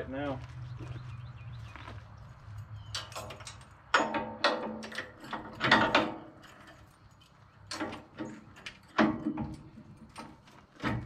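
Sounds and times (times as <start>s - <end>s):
metal latch clanks: 3.0s - 6.4s.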